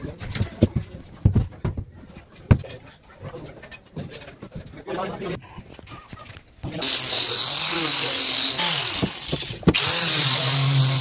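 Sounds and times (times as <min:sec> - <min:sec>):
power sander on wood: 0:06.8 - 0:11.0.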